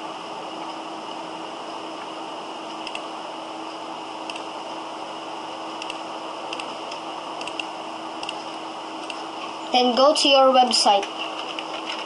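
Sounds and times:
microphone hiss and hum: 0.0s - 12.0s
computer mouse clicks: 2.7s - 3.1s, 4.2s - 4.5s, 5.8s - 9.2s.

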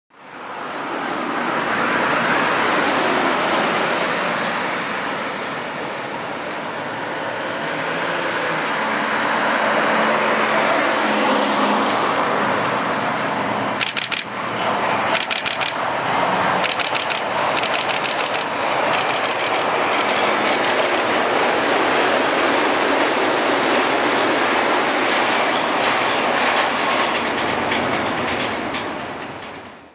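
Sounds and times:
monorail train rushing noise: 0.2s - 29.9s
sharp clacks: 13.8s - 14.3s, 15.1s - 15.8s, 16.6s - 21.1s.

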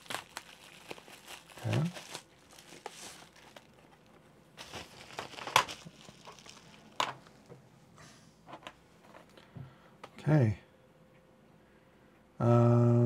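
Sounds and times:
bubble wrap rustling: 0.0s - 7.5s.

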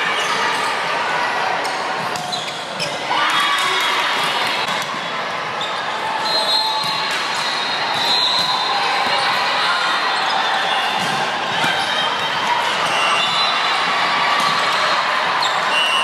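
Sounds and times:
chatter of people: 0.0s - 16.0s
crowd cheering: 0.0s - 16.0s
sneaker squeaks on hardwood: 2.2s - 3.0s
volleyball hits: 10.8s - 15.0s.

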